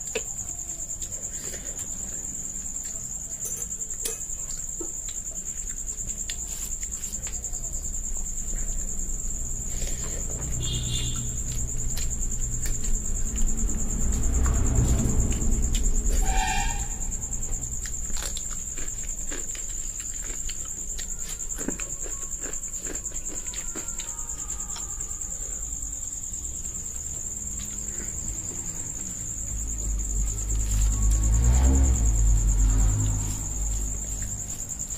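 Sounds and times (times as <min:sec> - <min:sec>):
crickets chirring: 0:00.0 - 0:34.9
mouth chewing: 0:08.4 - 0:14.6, 0:17.5 - 0:25.0.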